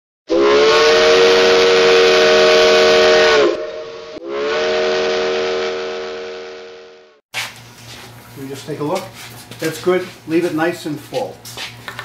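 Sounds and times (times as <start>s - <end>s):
steam whistle blasts: 0.3s - 7.2s.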